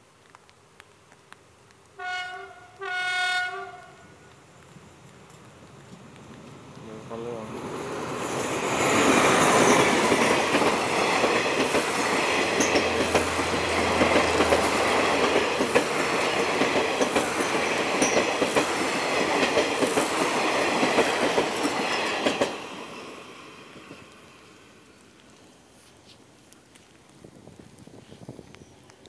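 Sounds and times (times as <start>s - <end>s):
diesel locomotive passing: 4.7s - 24.9s
train wheels clickety-clack: 5.3s - 23.0s.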